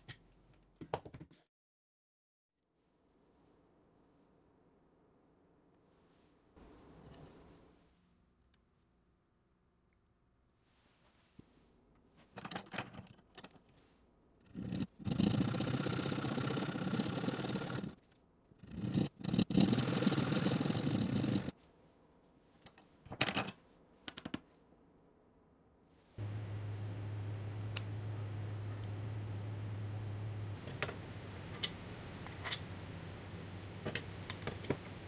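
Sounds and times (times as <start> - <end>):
small power tool cutting wood: 15.1 - 18.0, 19.4 - 21.5.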